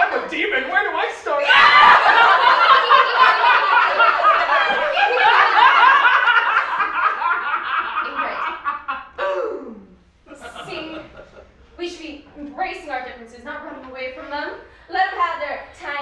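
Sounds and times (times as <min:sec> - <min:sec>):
people laughing: 0:01.4 - 0:09.3, 0:10.3 - 0:11.7.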